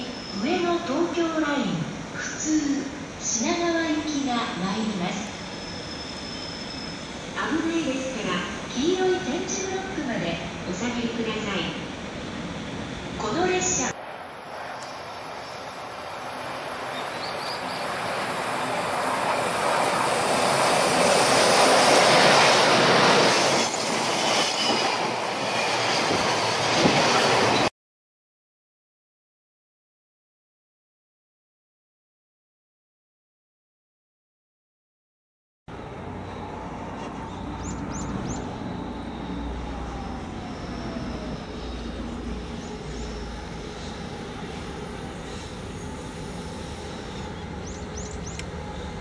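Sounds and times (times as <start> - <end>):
electric locomotive passing: 0.0 - 27.7, 35.7 - 49.0
train rumbling: 1.9 - 27.7, 35.7 - 49.0.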